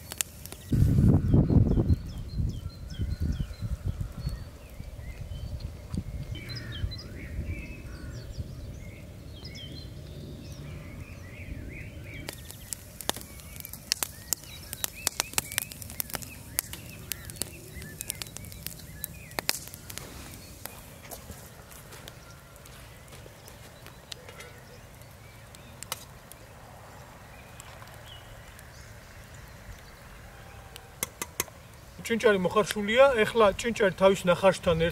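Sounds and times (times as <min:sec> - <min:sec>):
birds chirping: 0:00.0 - 0:34.9
wood fire crackling: 0:00.0 - 0:34.9.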